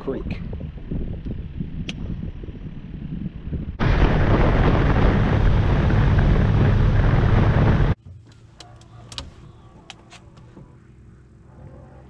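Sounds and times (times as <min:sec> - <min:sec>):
wind rushing over microphone: 0:00.0 - 0:08.0
boat motor rumble: 0:00.4 - 0:08.2.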